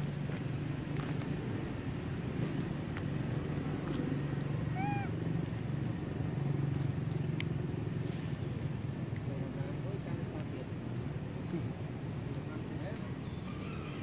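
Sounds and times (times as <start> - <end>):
macaque squeak: 4.7 - 5.1.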